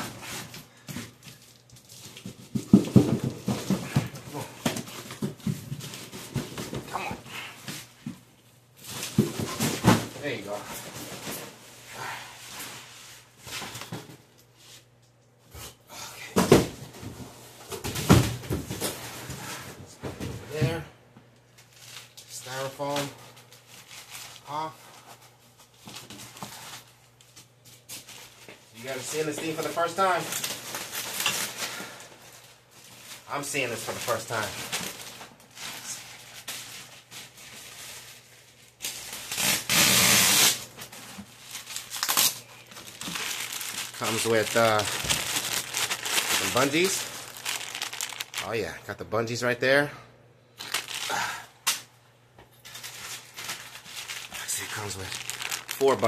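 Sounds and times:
foam packing handled: 0:27.8 - 0:48.8, 0:50.6 - 0:51.4, 0:52.6 - 0:56.0
styrofoam scraping against carton: 0:39.2 - 0:40.7.

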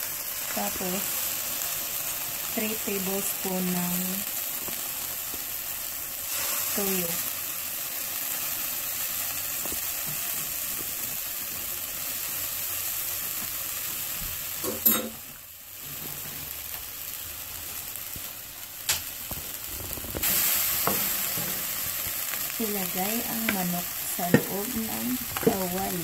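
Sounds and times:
food sizzling in hot oil: 0:00.0 - 0:26.0
spoon stirring in a pan: 0:23.3 - 0:26.0.

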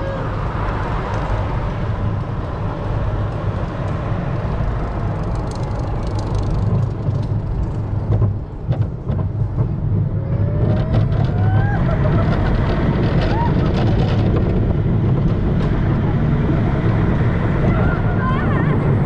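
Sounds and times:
roller coaster wheels rumbling: 0:00.0 - 0:19.0
sharp rattles: 0:04.9 - 0:09.0.

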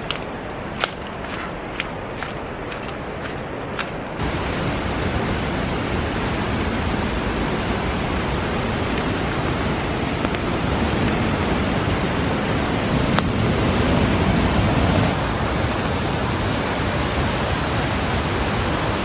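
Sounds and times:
river rapids roaring: 0:04.1 - 0:19.0.

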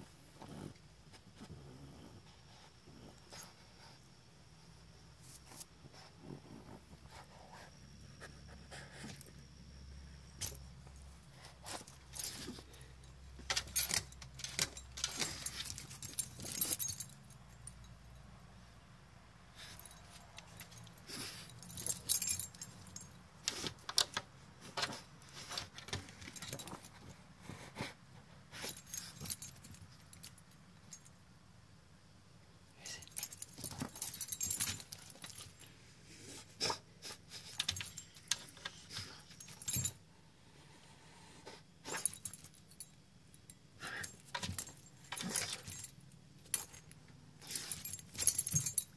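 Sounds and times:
dog collar tags jingling: 0:10.4 - 0:18.2, 0:19.6 - 0:24.2, 0:24.8 - 0:27.0, 0:28.6 - 0:31.1, 0:32.8 - 0:35.7, 0:37.4 - 0:40.0, 0:41.8 - 0:48.9.

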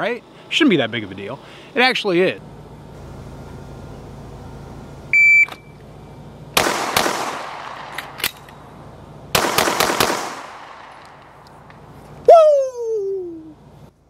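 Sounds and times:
shot timer beep: 0:05.2 - 0:05.7
handgun shots: 0:06.6 - 0:08.5, 0:09.4 - 0:11.4
pistol reload clicks: 0:06.6 - 0:08.6, 0:09.4 - 0:11.8.

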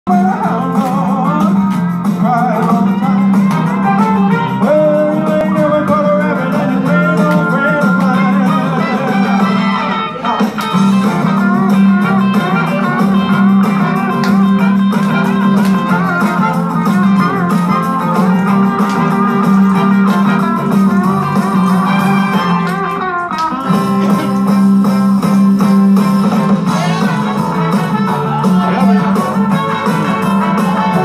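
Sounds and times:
rock and roll backing track with guitar: 0:00.1 - 0:31.0.

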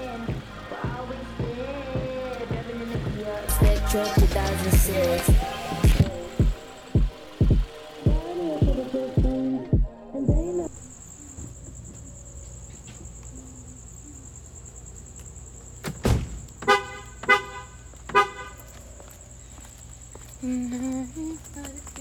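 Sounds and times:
low hum: 0:00.0 - 0:11.6
high insect trill: 0:00.0 - 0:22.0
car horn toots: 0:16.6 - 0:18.7.

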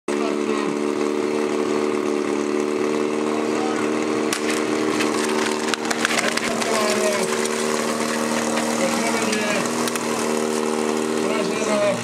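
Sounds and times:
pump engine running: 0:00.1 - 0:12.0
sharp crack: 0:04.3 - 0:10.3
scattered clattering: 0:04.3 - 0:11.4.

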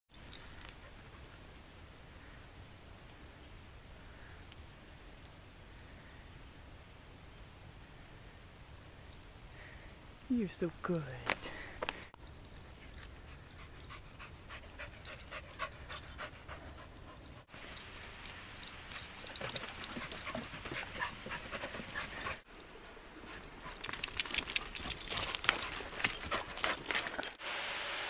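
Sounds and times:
dogs panting: 0:00.2 - 0:02.5, 0:11.5 - 0:27.4.

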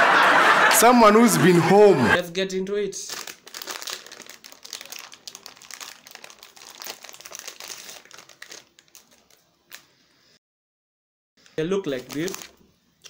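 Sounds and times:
crisp packet crinkling and tearing: 0:03.0 - 0:09.9, 0:11.9 - 0:12.7.

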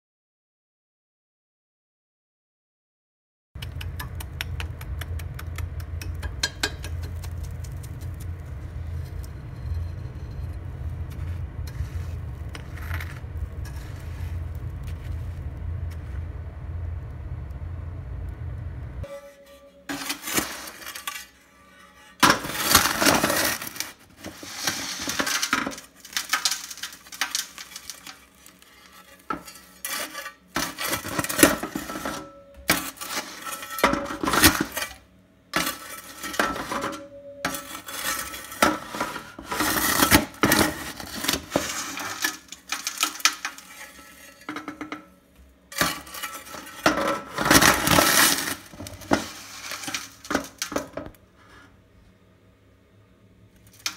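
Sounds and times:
shovel scraping metal firebox: 0:05.8 - 0:16.1, 0:19.0 - 0:51.8.

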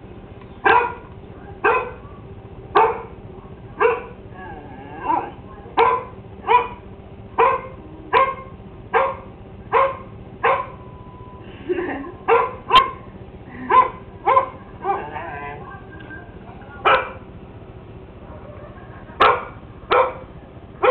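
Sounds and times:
dog barking: 0:00.6 - 0:04.2, 0:05.0 - 0:10.9, 0:12.3 - 0:13.1, 0:13.7 - 0:16.0, 0:16.8 - 0:17.3, 0:18.2 - 0:20.9
dog whining: 0:00.7 - 0:06.8, 0:13.7 - 0:17.2.

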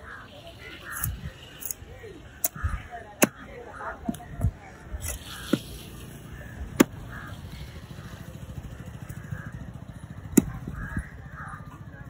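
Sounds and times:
cleaver chopping on wooden block: 0:10.3 - 0:10.6.

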